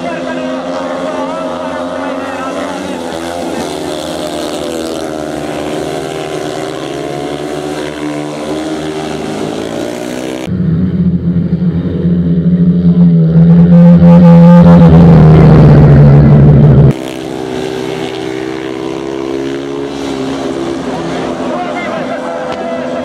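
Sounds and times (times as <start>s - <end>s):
low engine drone: 0.0s - 23.0s
racing motorcycle engines: 0.0s - 23.0s.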